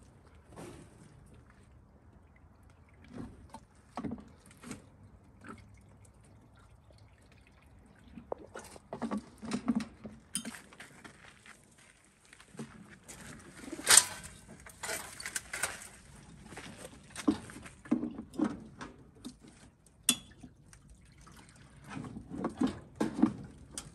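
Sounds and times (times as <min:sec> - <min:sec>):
water pouring from watering can: 0:02.2 - 0:09.5, 0:19.8 - 0:23.8.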